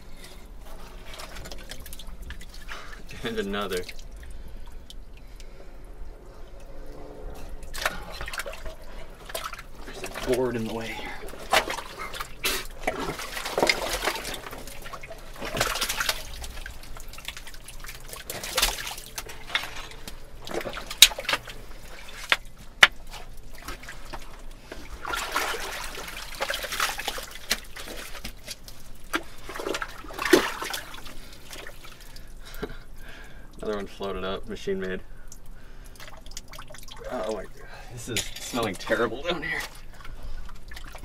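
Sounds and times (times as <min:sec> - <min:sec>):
squelching wet muck: 0:07.7 - 0:32.4.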